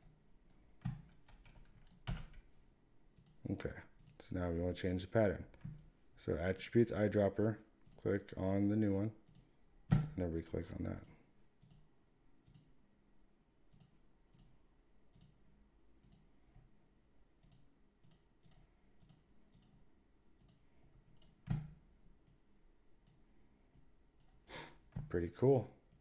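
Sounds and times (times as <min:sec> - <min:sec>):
computer mouse clicks: 0:03.2 - 0:03.4, 0:04.0 - 0:04.2, 0:07.8 - 0:08.1, 0:09.3 - 0:10.1, 0:11.0 - 0:12.7, 0:13.7 - 0:15.4, 0:16.0 - 0:16.3, 0:17.4 - 0:19.8, 0:20.4 - 0:20.6.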